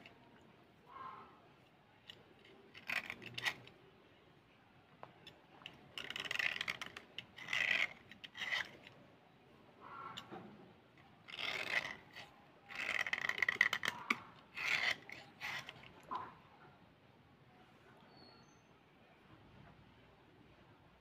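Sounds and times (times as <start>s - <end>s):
knife blade scraping slate pencil: 2.1s - 3.9s, 5.3s - 9.0s, 9.8s - 16.3s.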